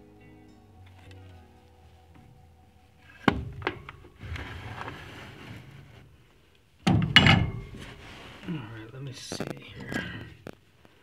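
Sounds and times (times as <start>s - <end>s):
cloth rustling: 3.8s - 6.8s, 7.5s - 9.8s.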